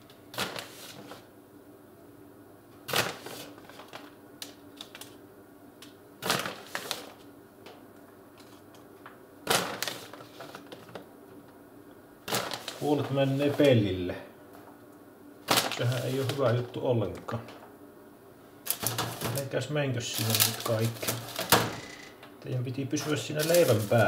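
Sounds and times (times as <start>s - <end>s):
plastic bag crinkling: 2.9s - 5.2s, 6.2s - 7.3s, 9.5s - 11.0s, 12.3s - 14.0s, 15.4s - 17.3s, 18.6s - 21.9s, 23.0s - 24.0s.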